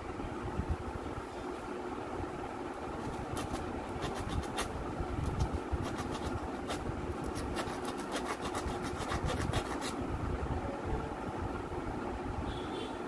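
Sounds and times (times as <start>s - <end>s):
sandpaper scraping metal: 3.0s - 4.7s, 5.4s - 10.0s.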